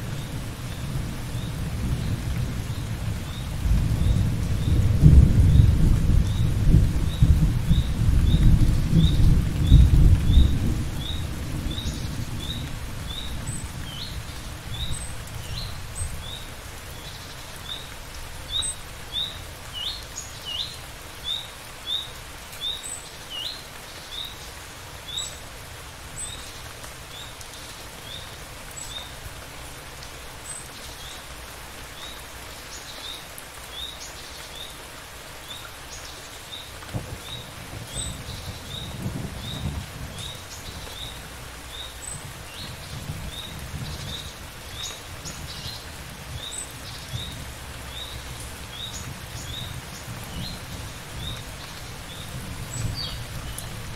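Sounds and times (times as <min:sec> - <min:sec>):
steady rain: 0:00.0 - 0:53.9
thunder rumbling: 0:00.9 - 0:13.2, 0:36.9 - 0:40.8.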